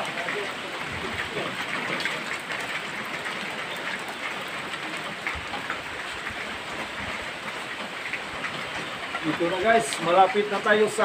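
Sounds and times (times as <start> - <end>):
rain on leaves: 0.0 - 11.0.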